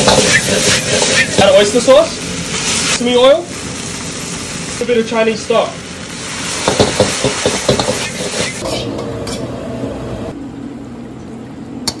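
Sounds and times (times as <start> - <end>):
metal ladle scraping a wok: 0.0 - 1.6, 6.4 - 9.4
food sizzling: 0.0 - 9.3.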